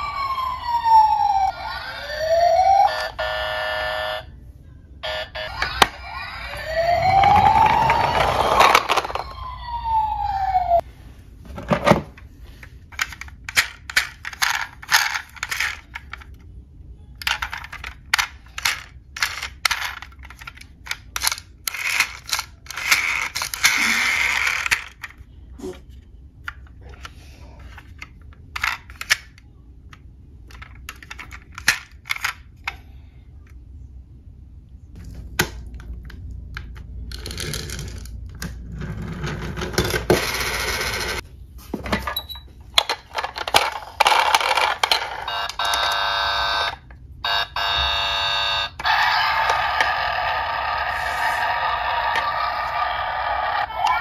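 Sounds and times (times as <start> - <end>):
toy siren wailing: 0.0 - 4.3, 5.0 - 10.8, 45.2 - 54.0
toy cars clattering in a box: 13.0 - 16.3, 17.2 - 25.1, 42.8 - 45.9.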